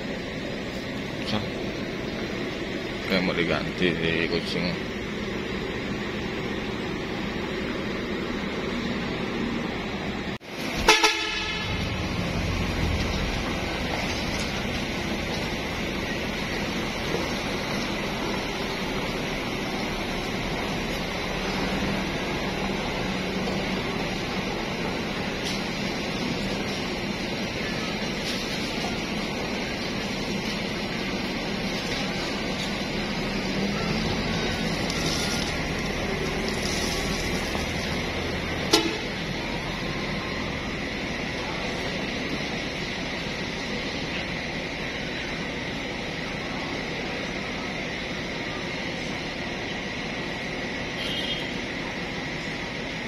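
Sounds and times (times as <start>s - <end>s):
bus diesel engine running: 0.0s - 53.0s.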